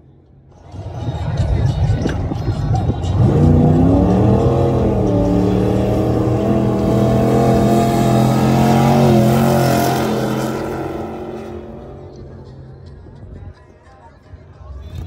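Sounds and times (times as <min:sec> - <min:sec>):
race car engine at high revs: 0:02.0 - 0:12.9.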